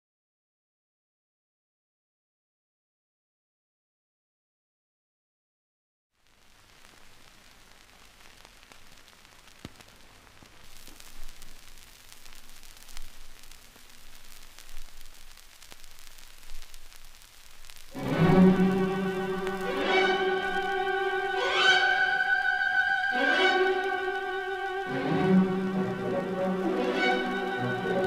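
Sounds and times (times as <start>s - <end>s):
film soundtrack hiss and crackle: 6.1s - 28.0s
clicks and pops: 7.9s - 17.9s.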